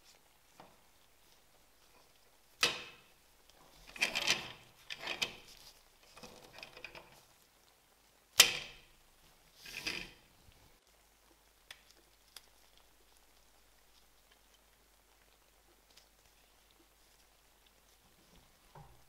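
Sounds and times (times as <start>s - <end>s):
toy car rolling on wood: 3.7s - 7.2s, 9.6s - 10.3s
plastic scraping and handling: 9.6s - 10.3s.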